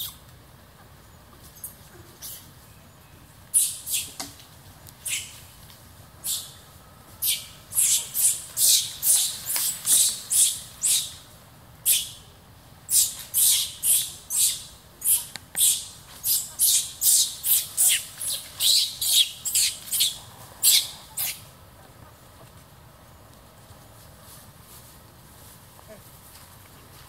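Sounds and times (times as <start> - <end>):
baby monkey screaming: 3.5 - 4.2, 5.0 - 5.4, 6.2 - 6.6, 7.2 - 11.2, 12.9 - 21.4.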